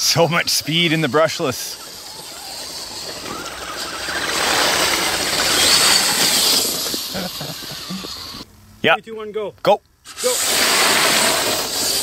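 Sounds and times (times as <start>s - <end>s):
tyres churning mud: 0.0s - 8.3s, 10.1s - 12.0s
electric motor whining: 0.3s - 8.4s.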